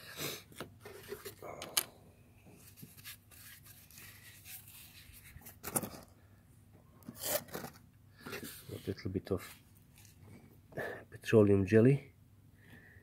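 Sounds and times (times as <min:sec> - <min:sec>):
hands rubbing and rustling: 0:02.5 - 0:05.8.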